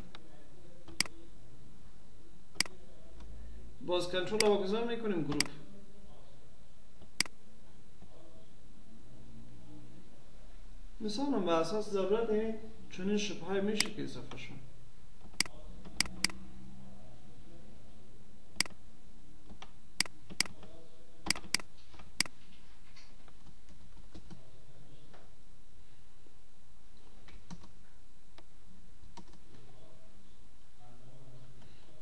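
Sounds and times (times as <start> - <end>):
mouse and keyboard clicks: 15.3 - 16.4, 21.3 - 22.4.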